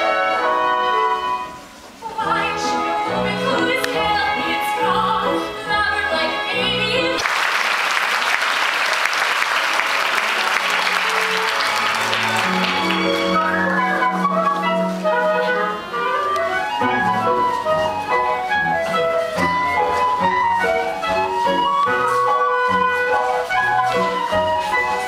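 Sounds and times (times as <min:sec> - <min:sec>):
cast singing with accompaniment: 0:02.0 - 0:07.2
audience applause: 0:07.2 - 0:14.4.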